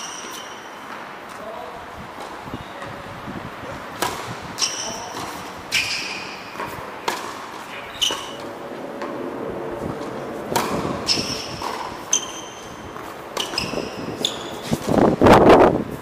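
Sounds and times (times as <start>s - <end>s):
shoe squeaks: 0.0s - 0.9s, 2.5s - 2.8s, 4.6s - 6.8s, 7.6s - 8.5s, 10.8s - 15.0s
rough noise burst: 3.2s - 15.9s
racket striking ball: 3.9s - 9.3s, 9.9s - 15.0s
ball bouncing: 4.0s - 9.2s, 10.0s - 14.4s.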